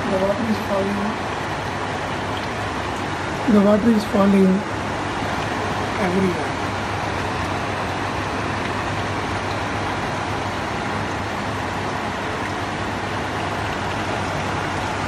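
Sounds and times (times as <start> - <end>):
air cooler fan hum: 0.0 - 15.0
water trickling: 0.0 - 15.0.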